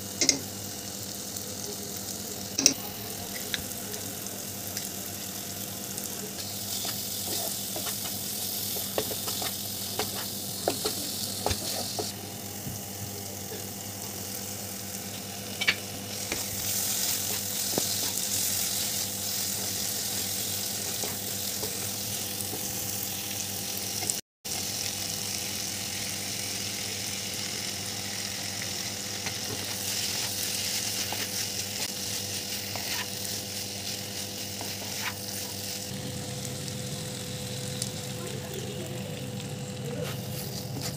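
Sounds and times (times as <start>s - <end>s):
masala sizzling in oil: 0.0s - 40.9s
spatula scraping a pan: 29.5s - 35.6s.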